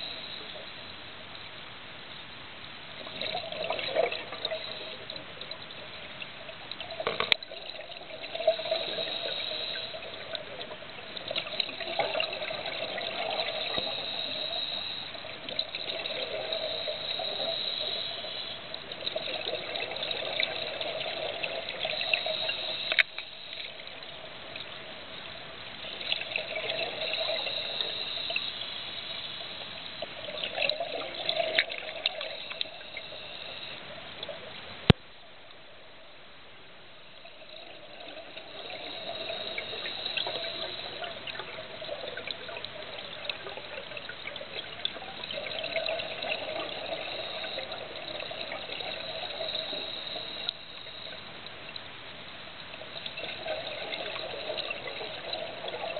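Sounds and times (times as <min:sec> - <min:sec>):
regulator hiss: 0:00.0 - 0:00.9, 0:08.1 - 0:24.0, 0:25.8 - 0:31.2, 0:31.9 - 0:34.0, 0:37.2 - 0:44.3, 0:45.0 - 0:51.4
underwater bubbles gurgling: 0:03.0 - 0:35.0, 0:37.1 - 0:51.9, 0:52.6 - 0:55.9.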